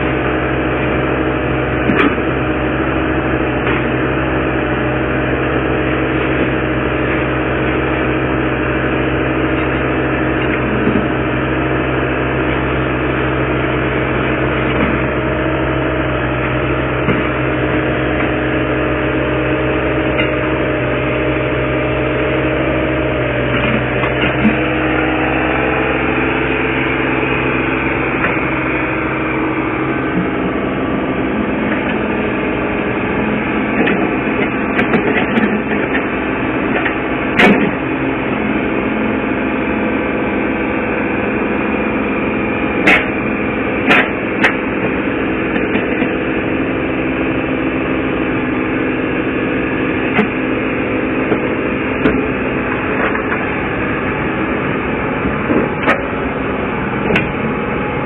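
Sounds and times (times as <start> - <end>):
excavator engine running: 0.0 - 58.0.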